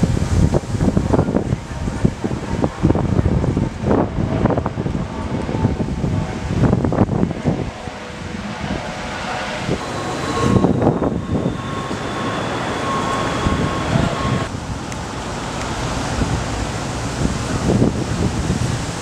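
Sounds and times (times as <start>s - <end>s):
traffic noise: 0.0s - 19.0s
wind rushing: 0.0s - 19.0s
thin high tone: 7.7s - 15.9s.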